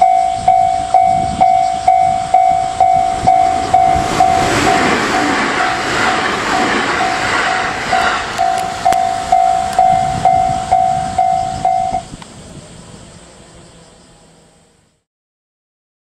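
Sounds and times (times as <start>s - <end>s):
level-crossing warning bell: 0.0s - 12.1s
electric train running: 0.0s - 14.8s.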